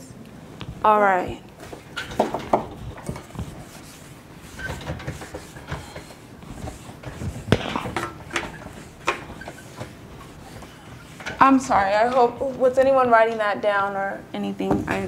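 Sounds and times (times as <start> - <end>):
eraser wiping whiteboard: 2.8 - 12.2.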